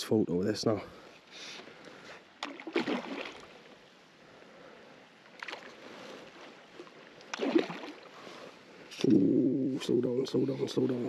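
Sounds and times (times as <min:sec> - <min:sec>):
low water wash: 0:01.7 - 0:10.0
fish splashing at surface: 0:02.4 - 0:03.6, 0:07.3 - 0:08.1.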